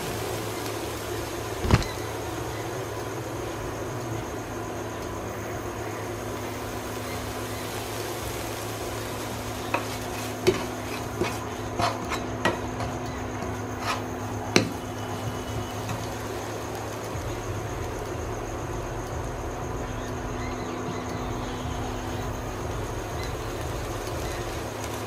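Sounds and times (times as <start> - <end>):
steady hum: 0.0 - 25.0
spatula scraping frying pan: 9.2 - 14.9.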